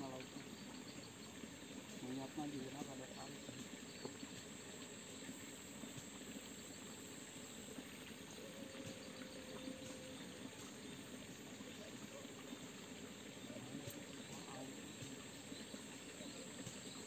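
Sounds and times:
stream trickling: 0.0 - 17.0
insect whine: 8.3 - 10.9.

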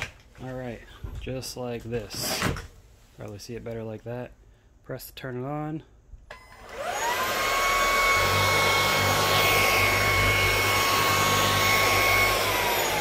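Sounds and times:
vacuum motor whine: 6.3 - 13.0.

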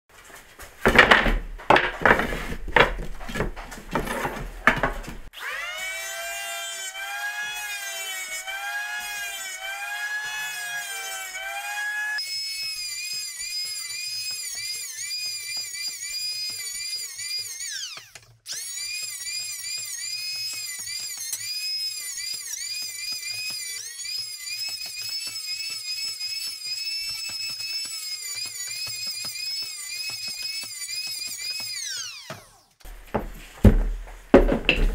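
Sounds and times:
wooden blocks knocking: 0.8 - 5.3, 32.9 - 34.9
electric hand planer whining: 5.4 - 33.4.

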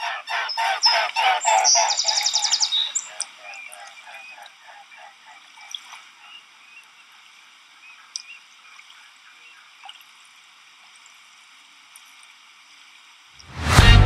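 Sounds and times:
sharp water drips: 0.8 - 4.6, 8.0 - 11.3
water trickling and dripping: 2.1 - 13.5.

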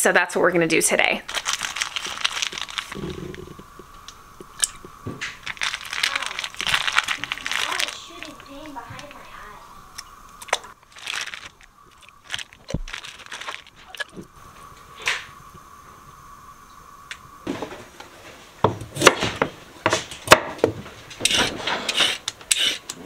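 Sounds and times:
plastic wrap and paper rustling: 1.3 - 3.7, 4.8 - 9.5, 10.4 - 14.3
carrots scraped on cutting board: 21.2 - 22.8.

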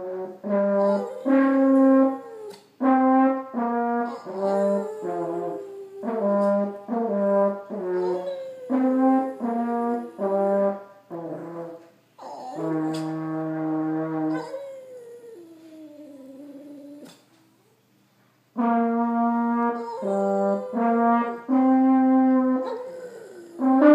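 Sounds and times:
french horn playing: 0.0 - 14.4, 18.5 - 23.9
dog howling: 0.7 - 2.7, 4.0 - 6.8, 7.7 - 10.8, 12.2 - 13.2, 14.3 - 17.3, 19.6 - 21.6, 22.4 - 23.9.

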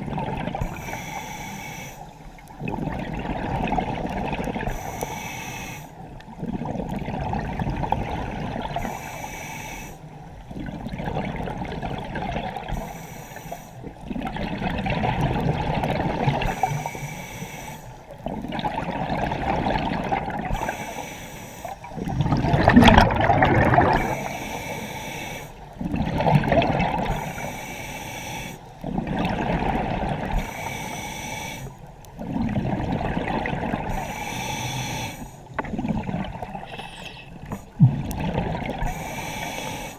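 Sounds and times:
gurgling exhaled bubbles: 0.0 - 0.8, 2.5 - 4.8, 6.4 - 8.9, 10.5 - 12.8, 13.9 - 16.8, 18.2 - 20.7, 21.8 - 24.6, 25.7 - 27.4, 28.8 - 30.5, 32.1 - 34.1, 35.5 - 39.1
regulator inhale hiss: 0.6 - 2.6, 4.6 - 6.2, 8.8 - 10.4, 12.7 - 13.9, 16.4 - 18.1, 20.5 - 22.2, 23.9 - 25.8, 27.0 - 28.9, 30.3 - 31.9, 33.9 - 35.6, 36.7 - 37.8, 38.8 - 39.9.

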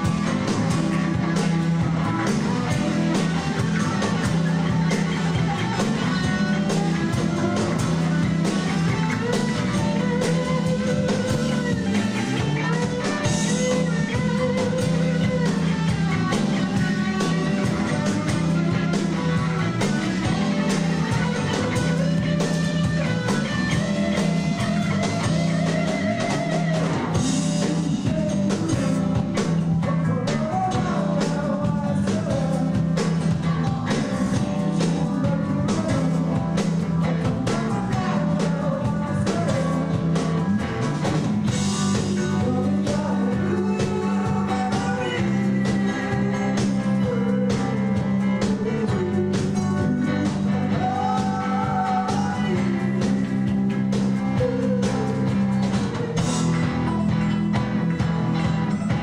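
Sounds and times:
bass guitar: 0.0 - 59.0
drum kit beat: 0.0 - 59.0
electric guitars: 0.0 - 59.0
melodic guitar lead line: 0.0 - 59.0.

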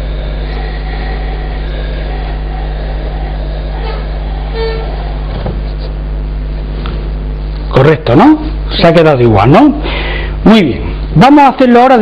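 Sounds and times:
low hum and hiss: 0.0 - 12.0
short pitched tone: 3.8 - 6.0.

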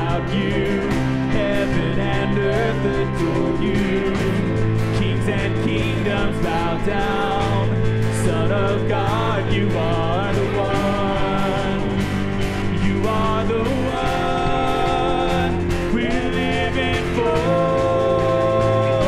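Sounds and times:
acoustic guitar: 0.0 - 19.0
electric bass: 0.0 - 19.0
steady drum beat: 0.0 - 19.0.

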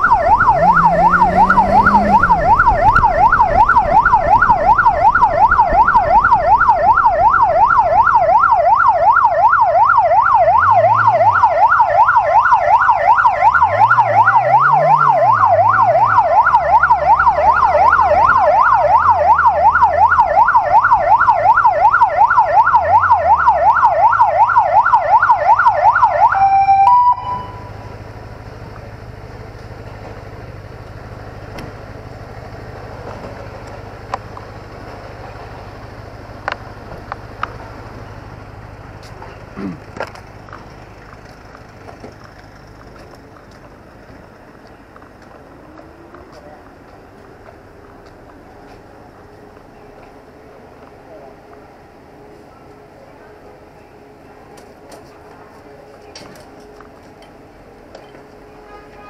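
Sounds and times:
motorcycle engine: 0.0 - 7.4
siren fast yelp: 0.0 - 27.7.

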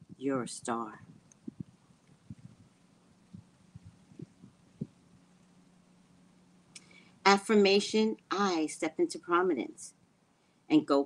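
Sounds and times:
soft low thumps: 0.0 - 5.1
faint low hum: 0.0 - 11.0.

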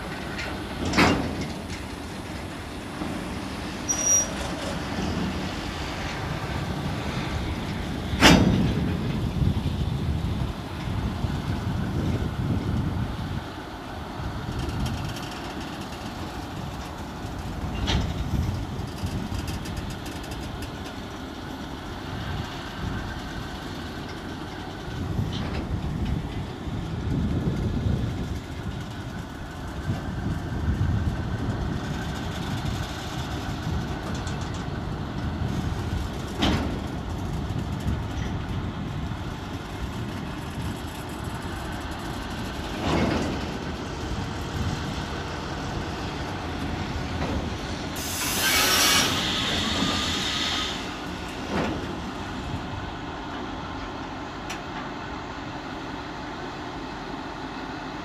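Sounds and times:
clanks of wheels and couplings: 0.0 - 58.0
freight train rumbling past: 0.0 - 58.0
high-pitched screech: 48.0 - 51.0.

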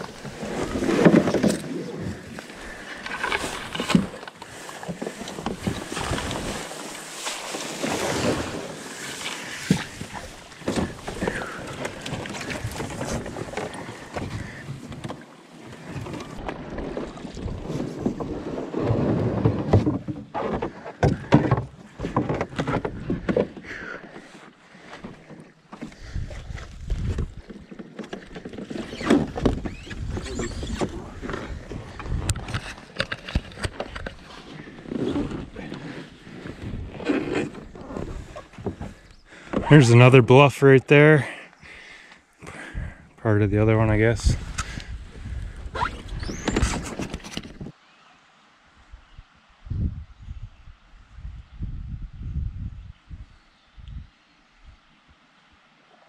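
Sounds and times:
metal canoe scraping over ground: 0.0 - 41.2.

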